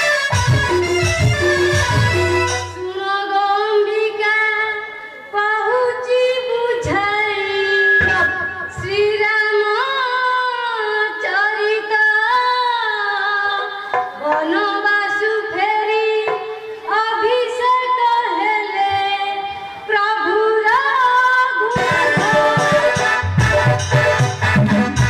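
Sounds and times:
musical accompaniment: 0:00.0 - 0:03.5, 0:06.8 - 0:09.9, 0:13.5 - 0:17.6, 0:21.7 - 0:25.0
girl singing: 0:02.8 - 0:22.9.

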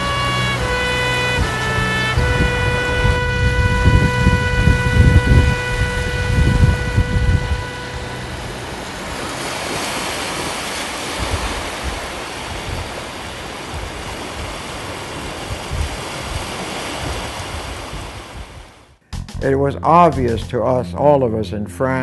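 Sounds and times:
held tone: 0:00.0 - 0:09.6
surf washing onto beach: 0:00.0 - 0:18.9.

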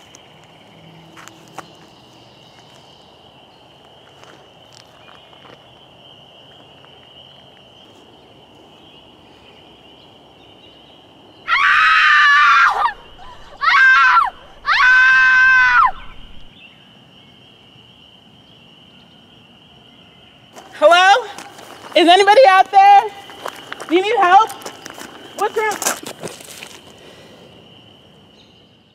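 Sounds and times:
crickets chirring: 0:00.0 - 0:28.9
person screaming: 0:11.5 - 0:16.4.

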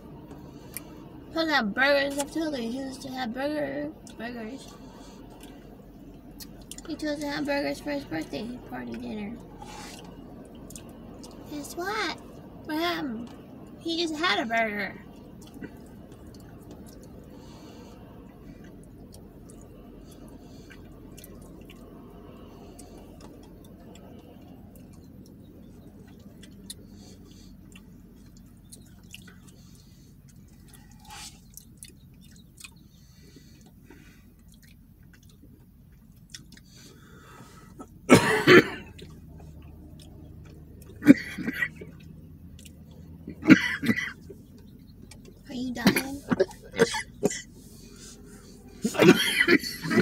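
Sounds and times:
low steady hum: 0:00.0 - 0:50.0
quiet chewing: 0:00.1 - 0:01.2, 0:04.0 - 0:07.0, 0:08.9 - 0:11.5, 0:15.0 - 0:38.1, 0:38.8 - 0:43.5, 0:44.1 - 0:45.4
loud coughs: 0:37.8 - 0:38.9, 0:41.0 - 0:41.8, 0:43.3 - 0:44.2, 0:45.8 - 0:47.5, 0:48.8 - 0:50.0.

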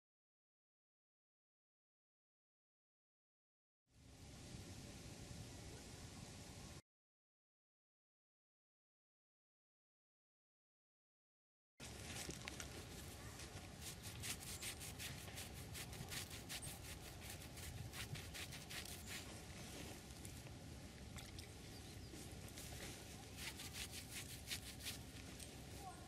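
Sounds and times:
faint outdoor rustling: 0:11.8 - 0:26.0.

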